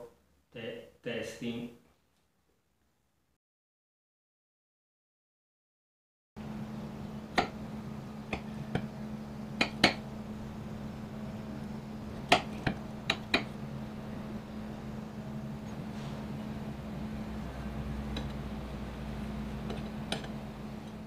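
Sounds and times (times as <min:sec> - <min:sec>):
steady low hum: 0:06.4 - 0:21.0.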